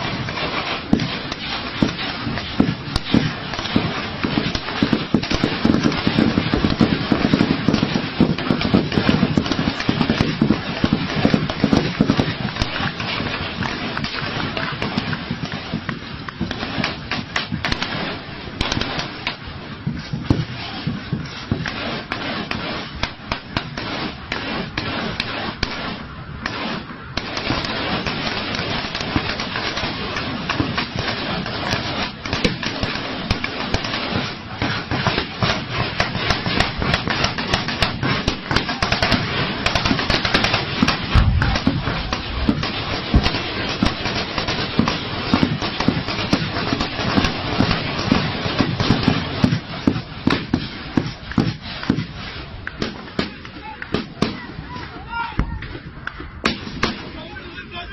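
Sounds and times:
automatic gunfire: 0.0 - 15.2, 21.5 - 52.0.

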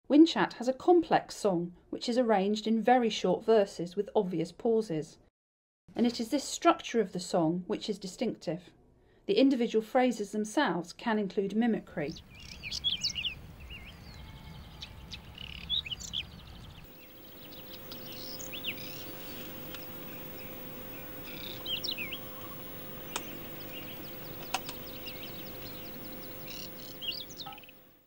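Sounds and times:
bird singing short verses: 12.1 - 27.9
faint steady hum: 16.8 - 28.0.

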